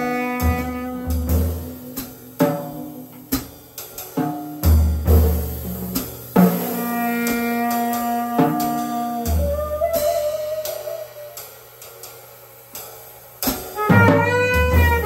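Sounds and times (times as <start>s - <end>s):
cymbal and drum strokes: 0.0s - 15.0s
saxophone low note: 6.9s - 11.4s, 13.8s - 15.0s
deep drum boom: 13.8s - 15.0s.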